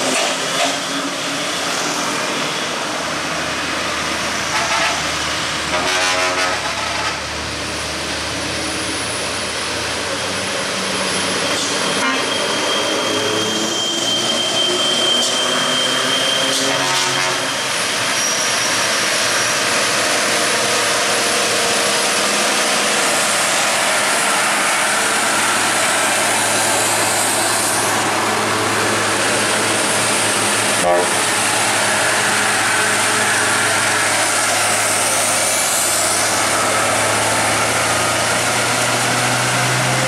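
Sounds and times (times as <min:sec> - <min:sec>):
diesel trucks labouring uphill: 0:15.2 - 0:40.0.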